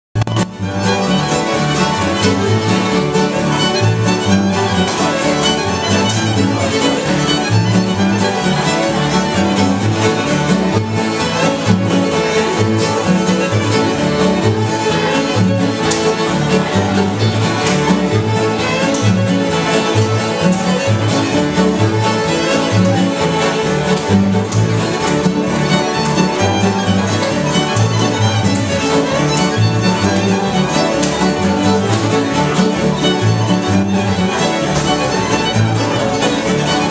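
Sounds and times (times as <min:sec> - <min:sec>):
fiddle: 0:00.2 - 0:36.9
mandolin: 0:00.2 - 0:36.9
strummed acoustic guitars: 0:00.2 - 0:36.9
upright bass: 0:00.2 - 0:36.9.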